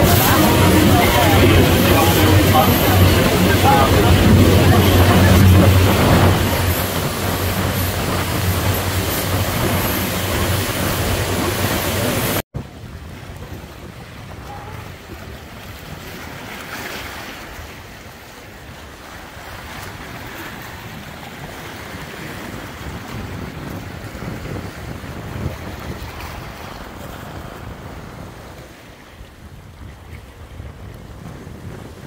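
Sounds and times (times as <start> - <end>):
motorboat engine humming: 0.0 - 16.6
rushing water: 0.0 - 32.0
waves washing over rocky shore: 0.0 - 32.0
wind on microphone: 0.0 - 32.0.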